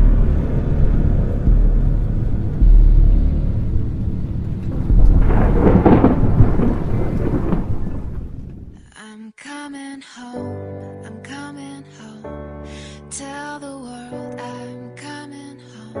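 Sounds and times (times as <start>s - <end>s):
thunder rumbling: 0.0s - 8.9s.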